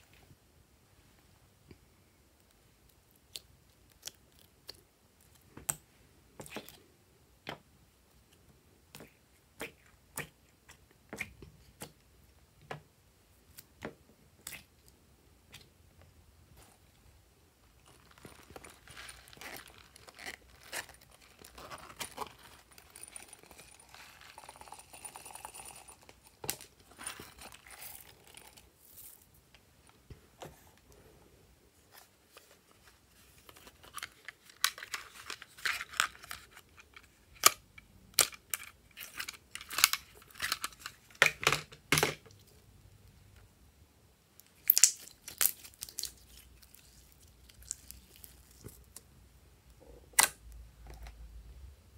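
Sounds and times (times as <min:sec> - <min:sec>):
soft crinkling rustle: 0:16.5 - 0:37.4, 0:44.4 - 0:49.1.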